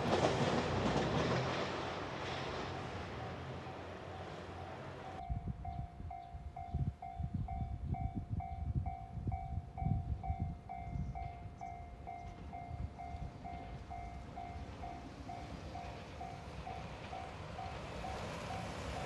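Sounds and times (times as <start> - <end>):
level crossing alarm ringing: 5.1 - 19.0
wind rumbling on microphone: 5.2 - 19.0.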